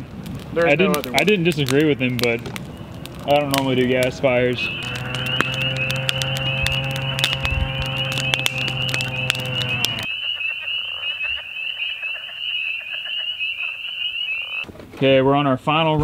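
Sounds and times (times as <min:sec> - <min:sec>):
campfire crackling and popping: 0:00.0 - 0:14.9
low hum: 0:02.4 - 0:10.1
frogs chirping: 0:02.5 - 0:14.7.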